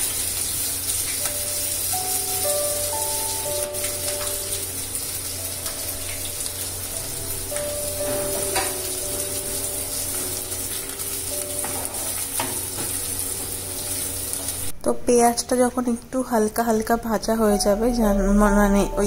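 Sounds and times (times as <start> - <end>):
onions sizzling in oil: 0.0 - 14.7
soft background music: 0.9 - 19.0.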